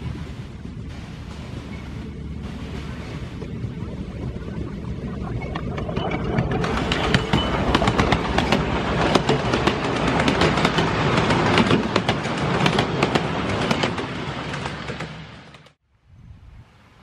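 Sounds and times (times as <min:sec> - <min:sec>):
small steam locomotive passing: 0:04.8 - 0:15.8
train wheels clicking over rails: 0:05.6 - 0:15.8.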